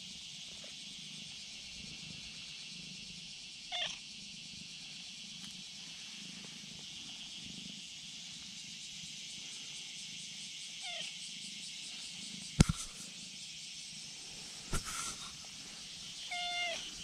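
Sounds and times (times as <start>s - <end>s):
steady high hiss: 0.0s - 17.0s
cat meowing: 16.3s - 16.9s.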